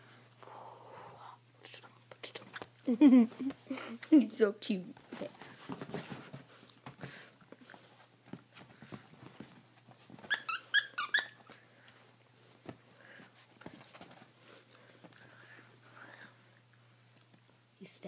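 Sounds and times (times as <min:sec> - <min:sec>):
toy squeaking: 0:10.3 - 0:11.4.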